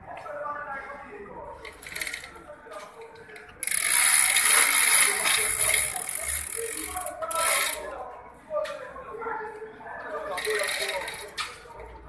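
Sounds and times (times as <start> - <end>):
hand ratchet clicking: 3.6 - 7.8, 10.4 - 11.5.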